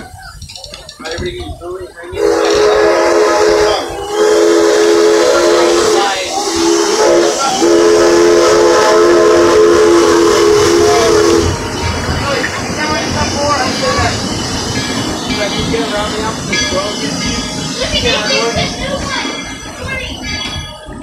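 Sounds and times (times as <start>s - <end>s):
steam hissing: 1.4s - 21.0s
steam locomotive whistle: 2.1s - 12.4s.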